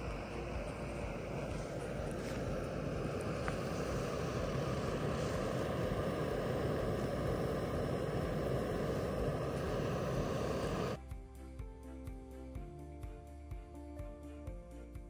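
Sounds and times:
gas stove burning: 0:00.0 - 0:11.0.

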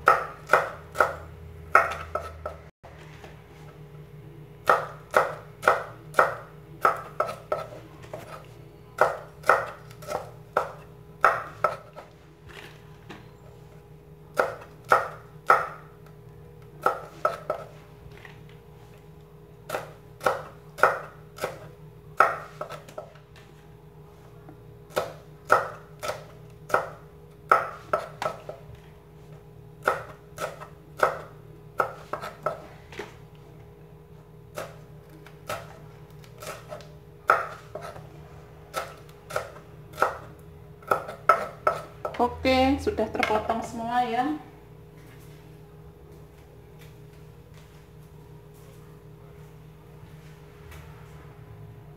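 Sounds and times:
cleaver chopping on wooden board: 0:09.0 - 0:11.8.

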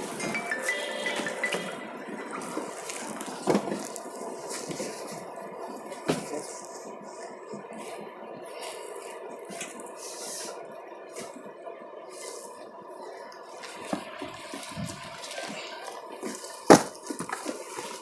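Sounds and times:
fabric rustling: 0:02.2 - 0:11.4.

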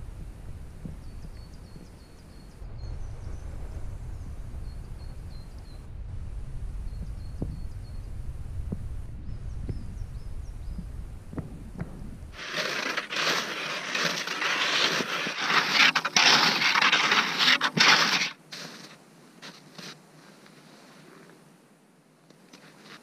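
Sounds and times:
low outdoor rumble: 0:00.0 - 0:18.4
footsteps crunching through snow: 0:12.3 - 0:21.2.

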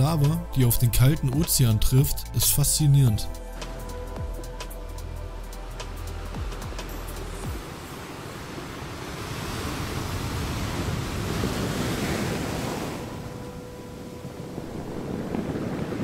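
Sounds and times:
ocean surf surging: 0:05.6 - 0:16.0
hiss of lava meeting seawater: 0:07.6 - 0:13.3, 0:14.2 - 0:16.0.

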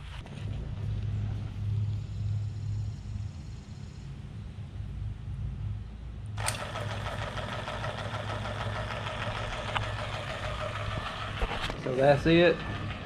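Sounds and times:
low motor hum: 0:04.7 - 0:13.0
vacuum pump mechanical clatter: 0:06.4 - 0:13.0.

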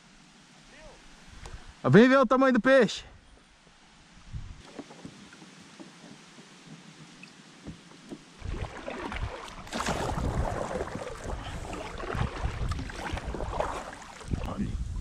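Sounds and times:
water rumbling against hull: 0:04.2 - 0:15.0
paddle splashing water: 0:04.6 - 0:14.6.

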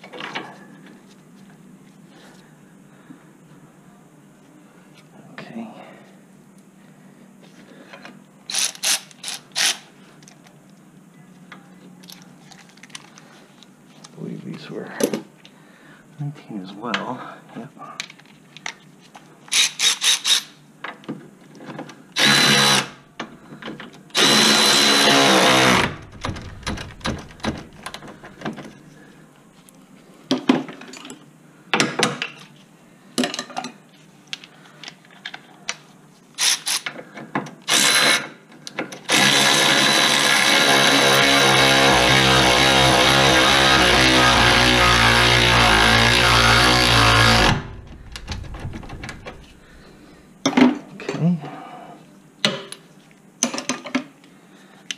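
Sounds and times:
power drill bursts: 0:22.2 - 0:23.0, 0:24.2 - 0:28.0, 0:37.7 - 0:38.2, 0:39.1 - 0:49.7.

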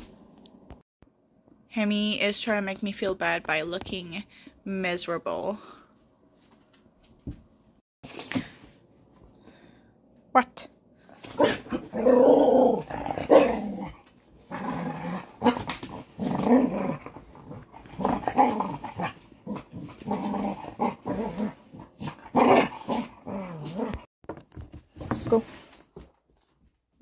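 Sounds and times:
dogs growling: 0:11.3 - 0:24.1.

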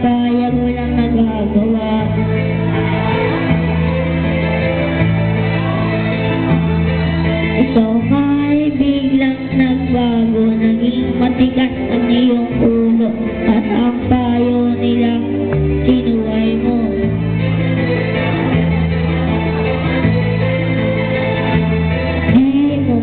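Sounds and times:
backing music with chords: 0:00.0 - 0:23.0
boy singing into microphone: 0:07.6 - 0:16.9.

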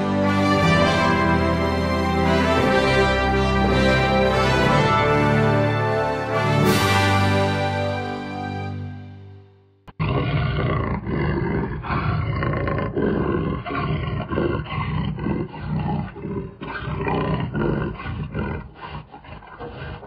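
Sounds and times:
big cat roaring and growling: 0:09.9 - 0:20.0.

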